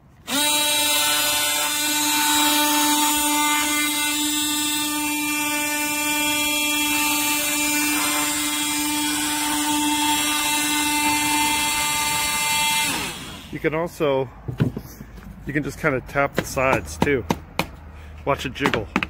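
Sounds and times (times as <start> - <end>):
oscillating multi-tool buzzing: 0.2 - 13.6.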